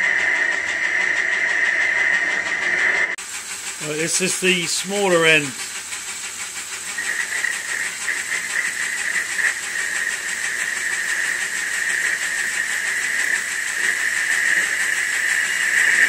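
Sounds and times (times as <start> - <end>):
lathe hissing: 0.0 - 16.0
high-pitched cutting whine: 3.8 - 5.7, 7.0 - 16.0.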